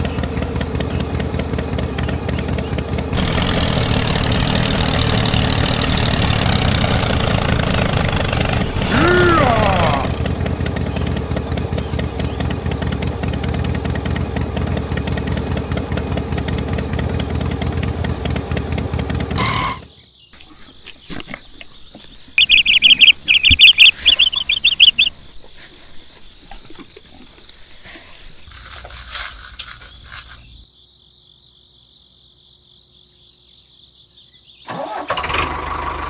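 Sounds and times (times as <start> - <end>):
power tiller engine running: 0.0 - 19.8, 20.4 - 28.5, 34.7 - 36.0
bird chirping: 20.0 - 28.5.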